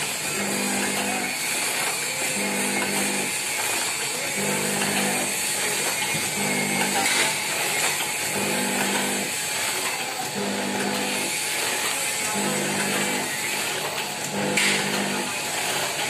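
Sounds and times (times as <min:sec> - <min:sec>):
packing machine whirring: 0:00.0 - 0:16.0.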